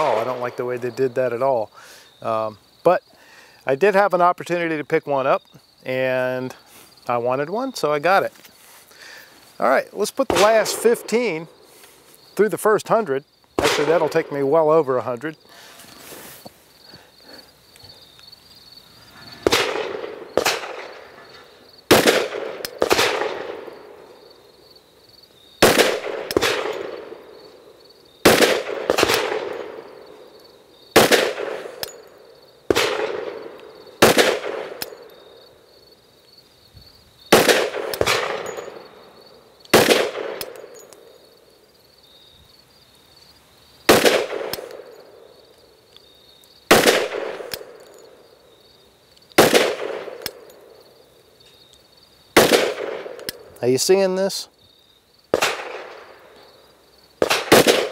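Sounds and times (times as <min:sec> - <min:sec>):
pistol shots echoing: 0:00.0 - 0:01.2, 0:10.3 - 0:11.4, 0:13.6 - 0:14.4, 0:19.4 - 0:21.1, 0:21.9 - 0:24.0, 0:25.6 - 0:27.4, 0:28.2 - 0:30.0, 0:31.0 - 0:32.1, 0:32.7 - 0:35.1, 0:37.3 - 0:39.0, 0:39.7 - 0:40.9, 0:43.9 - 0:45.3, 0:46.7 - 0:47.8, 0:49.4 - 0:50.6, 0:52.4 - 0:53.5, 0:55.3 - 0:56.3, 0:57.2 - 0:57.9.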